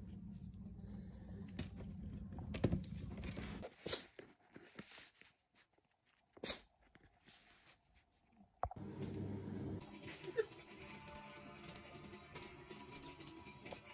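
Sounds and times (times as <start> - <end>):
low steady hum: 0.0 - 3.6
paper rustling: 2.5 - 8.3.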